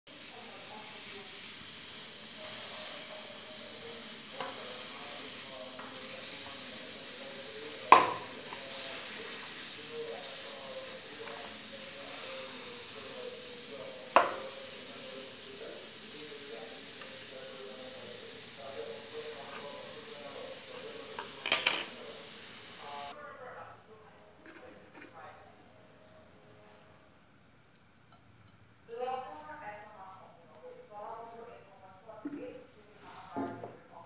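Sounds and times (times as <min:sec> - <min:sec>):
steady hiss: 0:00.1 - 0:23.2.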